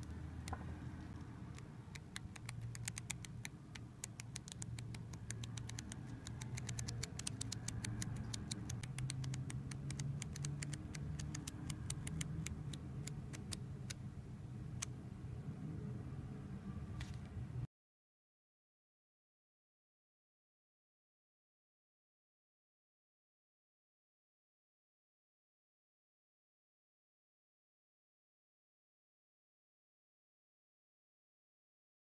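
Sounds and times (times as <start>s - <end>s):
flipbook pages flicking: 2.0s - 14.0s.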